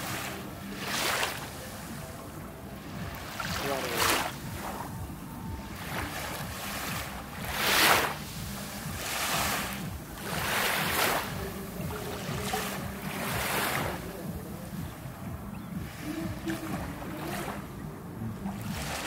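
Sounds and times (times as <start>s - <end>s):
small waves washing up a shore: 0.0s - 19.0s
low steady rumble: 4.3s - 19.0s.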